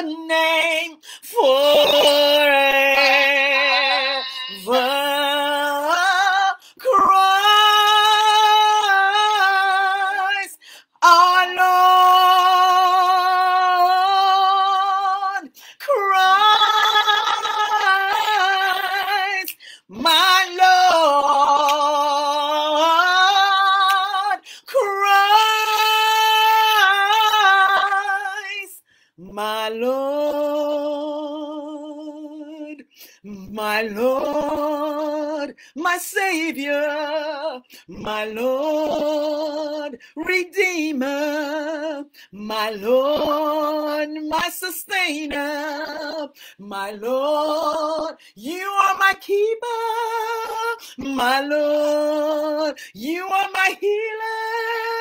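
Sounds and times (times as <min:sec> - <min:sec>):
woman singing unaccompanied: 0:00.0 - 0:55.0.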